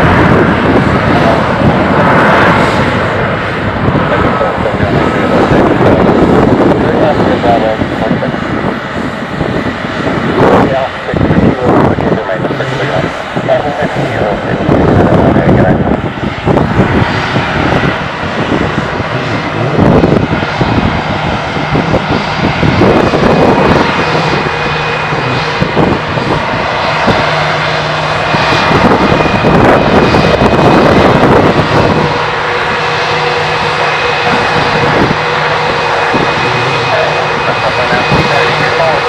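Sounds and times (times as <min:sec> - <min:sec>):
jet engines running with whine: 0:00.0 - 0:39.0.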